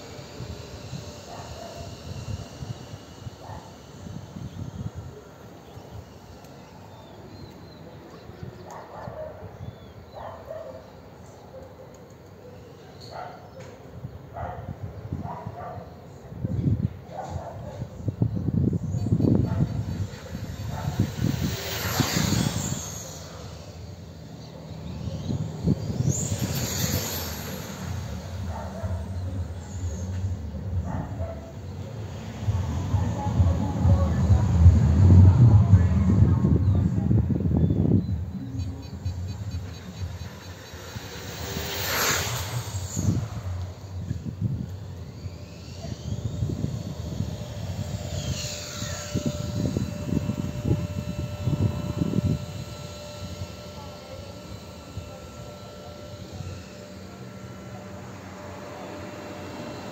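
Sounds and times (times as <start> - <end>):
radio-controlled car motor whine: 0.0 - 59.9
low uneven rumble: 24.6 - 45.0.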